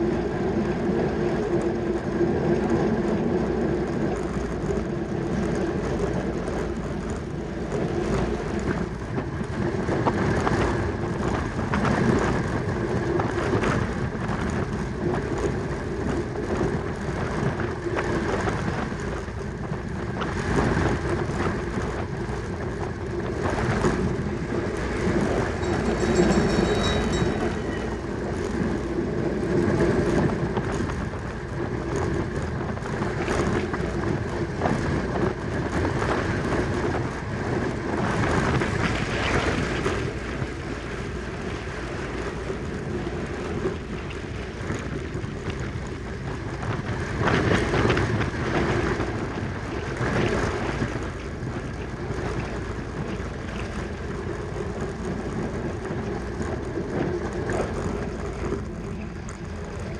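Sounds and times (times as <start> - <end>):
bicycle rolling noise: 0.0 - 59.9
constant hum: 0.0 - 59.9
wind rush: 0.0 - 59.9
high ringing tone: 24.8 - 29.8.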